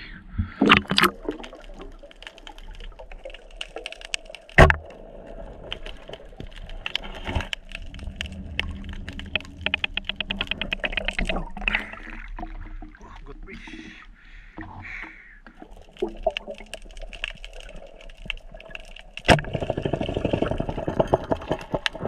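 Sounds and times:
underwater clicking crackle: 0.6s - 22.0s
underwater spear thud: 4.6s - 4.8s, 19.3s - 20.6s.

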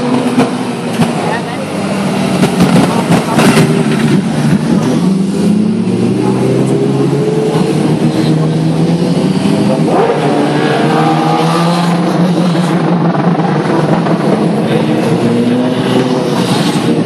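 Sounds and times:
racing motorcycles revving past: 3.4s - 17.0s.

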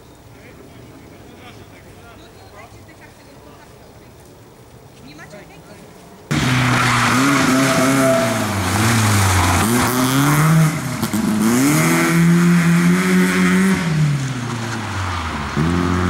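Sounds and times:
rally car engine revving: 6.3s - 16.0s.

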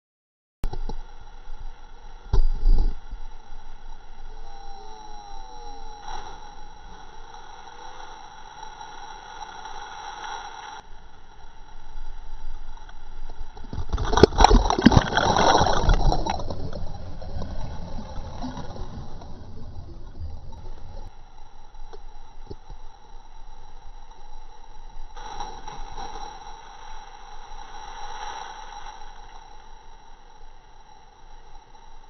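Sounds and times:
diver splashing into water: 13.7s - 19.6s
rushing churning water: 13.7s - 21.1s.

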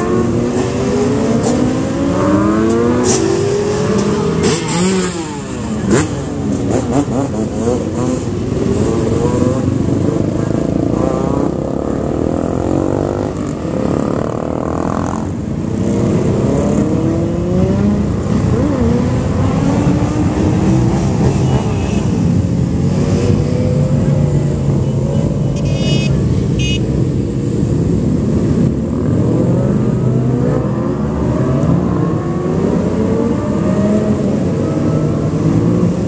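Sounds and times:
motorcycles revving past: 0.0s - 25.4s, 27.0s - 36.0s.

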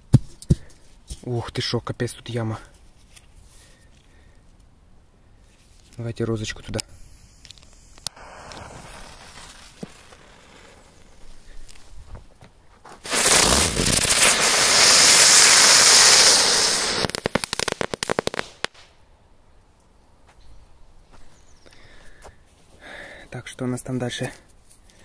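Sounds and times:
firework hissing and crackling: 6.6s - 12.0s, 13.0s - 18.8s.

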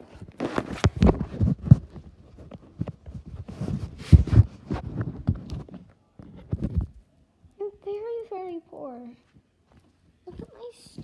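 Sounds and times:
microphone handling thumps and rustling: 0.0s - 7.0s.

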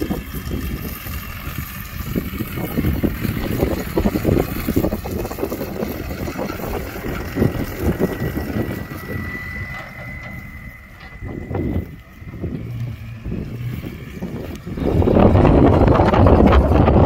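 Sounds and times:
thin high whine: 0.0s - 17.0s
wind buffeting microphone: 0.0s - 17.0s
pickup truck engine driving past: 0.3s - 17.0s.

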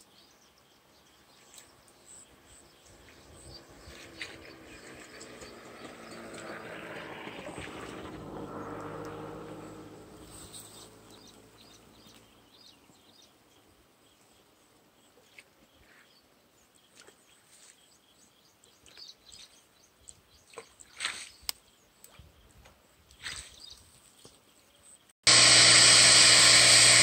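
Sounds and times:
low engine hum: 2.4s - 12.6s.

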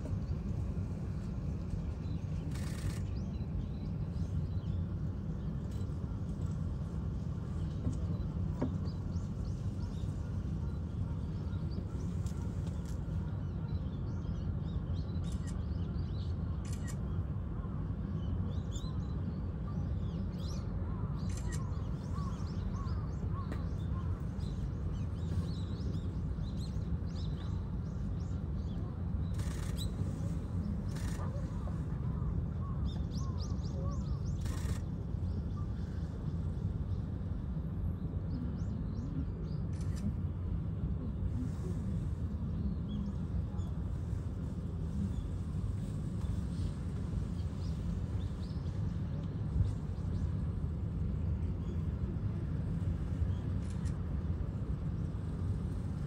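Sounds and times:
faint bird calls: 29.3s - 34.9s.

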